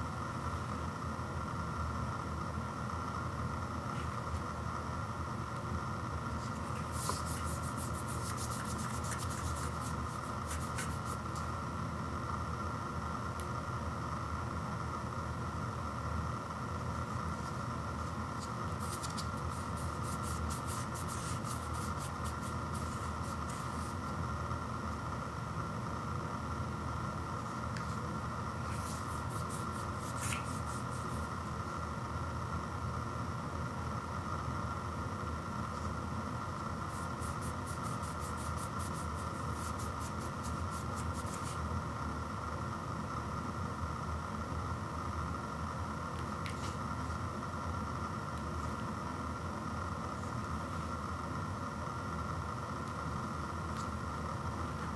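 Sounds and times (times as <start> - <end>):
steady background hum: 0.0 - 54.9
fingers rubbing plastic container: 6.7 - 11.2.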